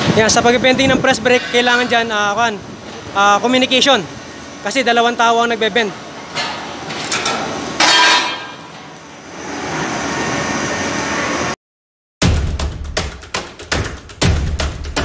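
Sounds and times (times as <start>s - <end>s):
sheet metal clanking and rattling: 1.1s - 2.1s, 6.3s - 8.9s
music with thumping beats: 12.2s - 15.0s.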